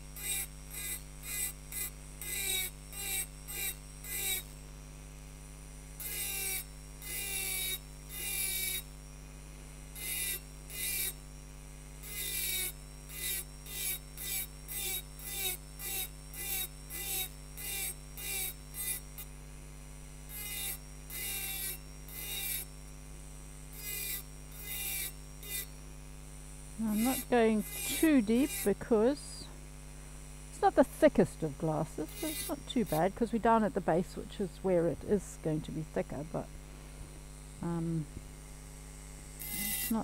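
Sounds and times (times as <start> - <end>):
steady low hum: 0.0 - 40.0
rotary tool grinding glass: 0.1 - 4.6, 6.0 - 9.0, 10.0 - 11.2, 12.0 - 19.4, 20.2 - 22.8, 23.7 - 25.8, 26.8 - 29.5, 30.5 - 35.4, 39.3 - 40.0.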